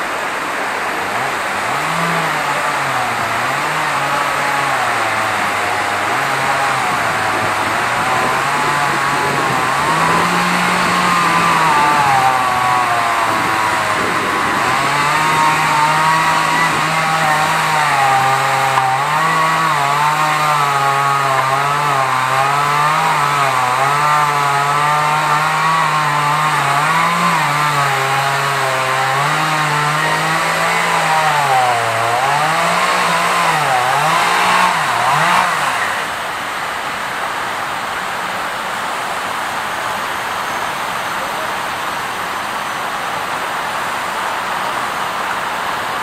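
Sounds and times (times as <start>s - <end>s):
small engine revving high: 1.0s - 36.3s.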